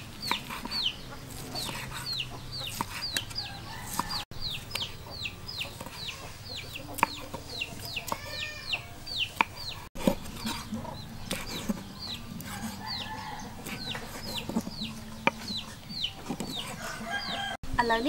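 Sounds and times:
chickens peeping and clucking: 0.0 - 17.6
knife chopping on wooden board: 2.7 - 4.2.

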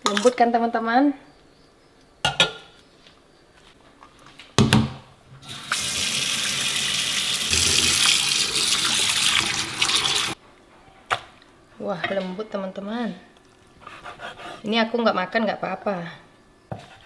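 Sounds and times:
tap water running into steel bowl: 5.5 - 10.4.

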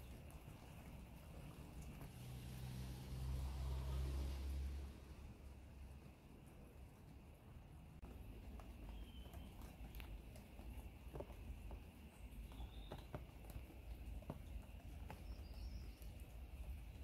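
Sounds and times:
light taps and clicks: 8.0 - 17.0.

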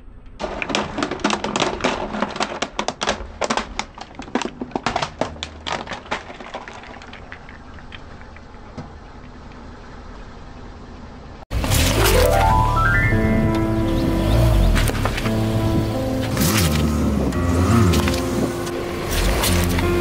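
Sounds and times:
plastic toys cracking under tyre: 0.2 - 8.9, 19.1 - 20.0.

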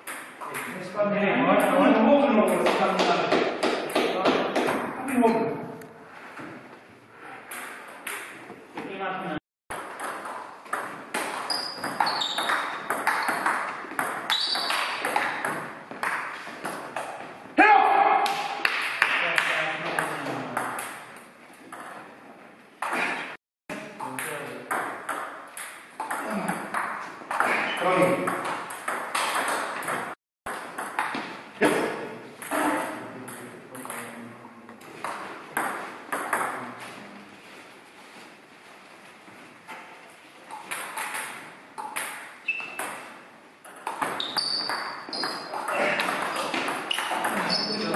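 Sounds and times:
table tennis ball hits: 2.5 - 5.2, 9.7 - 17.3, 18.2 - 22.1, 24.0 - 34.2, 34.8 - 36.6, 40.5 - 47.9.

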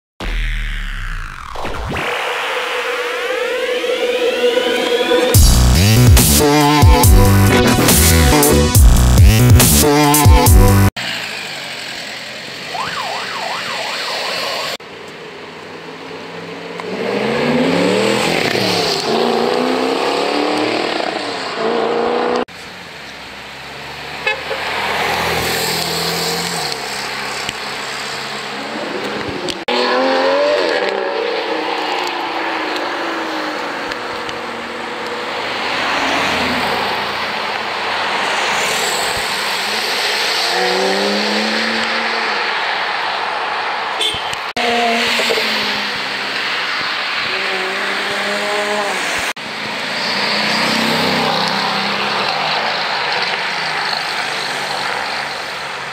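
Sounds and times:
sports car engines revving: 14.8 - 55.9.

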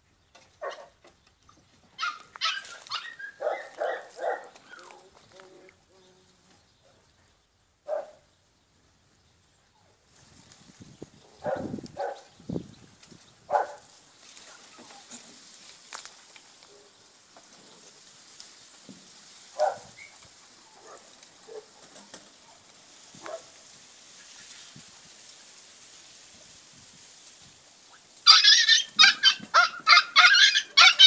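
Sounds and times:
dog yipping: 2.0 - 4.9, 28.3 - 31.0
faint steady hiss: 3.7 - 28.3.

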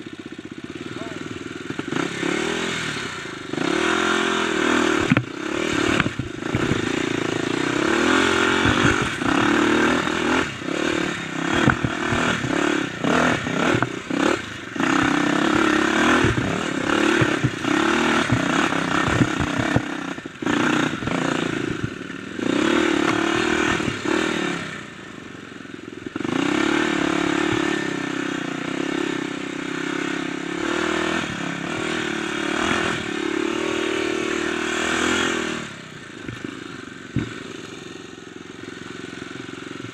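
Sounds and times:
dirt bike engine revving: 0.0 - 39.9
bike knocks and clatter on bumps: 8.4 - 9.5, 11.5 - 14.2, 16.0 - 20.0, 36.2 - 37.6.

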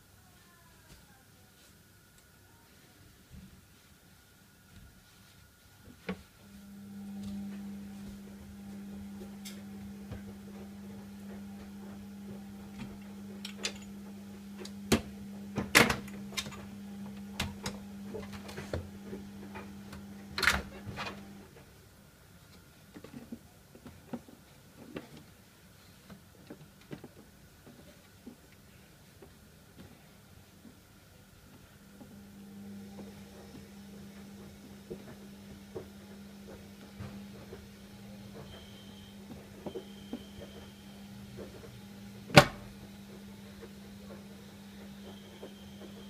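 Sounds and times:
exhaust fan motor humming: 5.9 - 21.8, 31.3 - 46.0.

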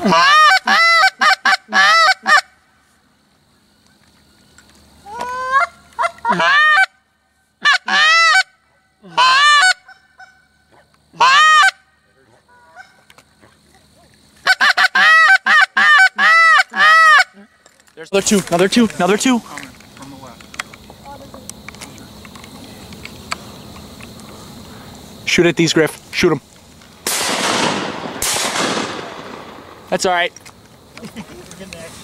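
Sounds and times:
goose-like honking calls: 0.0 - 2.6, 5.0 - 7.0, 7.6 - 13.2, 14.4 - 17.4.

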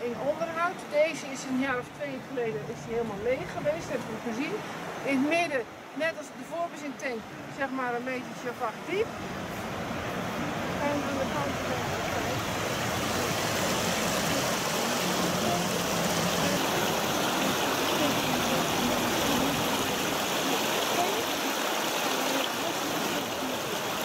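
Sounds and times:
water spilling over weir: 10.8 - 24.0.

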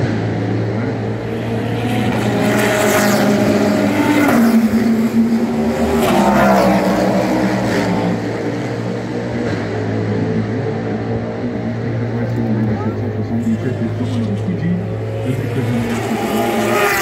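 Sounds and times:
race cars passing at speed: 0.0 - 17.0.

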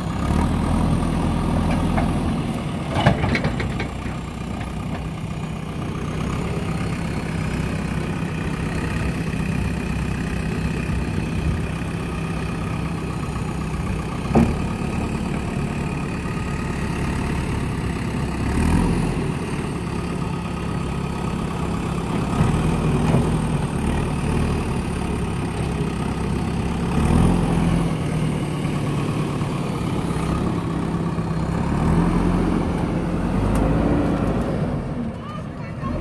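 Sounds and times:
diesel engine revving: 0.0 - 36.0.

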